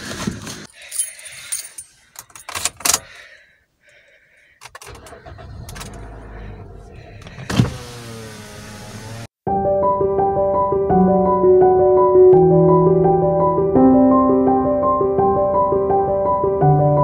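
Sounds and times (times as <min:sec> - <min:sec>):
car engine starting and idling: 0:04.6 - 0:09.3.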